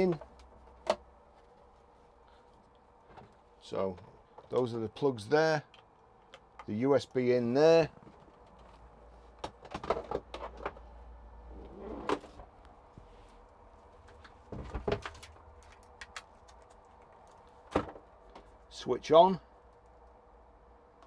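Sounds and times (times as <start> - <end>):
plastic parts clicking and knocking: 9.4 - 10.8.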